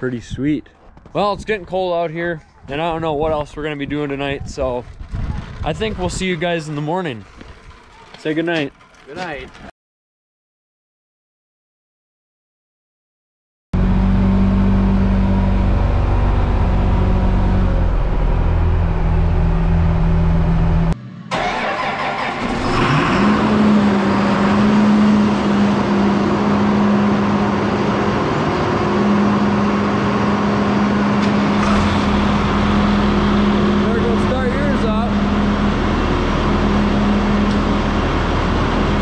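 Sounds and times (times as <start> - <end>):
diesel tractor engines running: 2.1 - 9.7, 13.8 - 39.0
engine revving up: 13.8 - 39.0.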